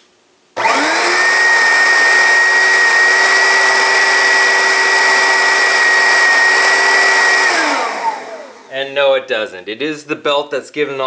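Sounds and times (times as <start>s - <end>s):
vacuum cleaner motor whining: 0.6s - 8.7s.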